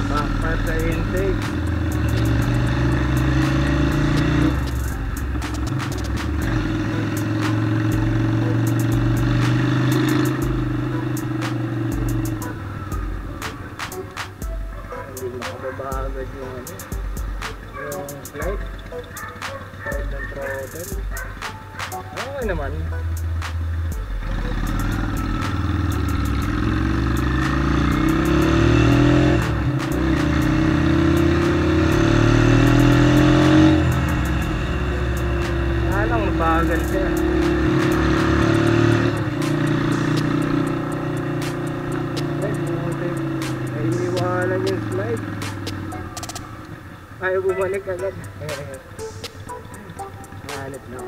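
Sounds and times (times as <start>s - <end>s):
motorcycle engine at road speed: 0.0s - 51.0s.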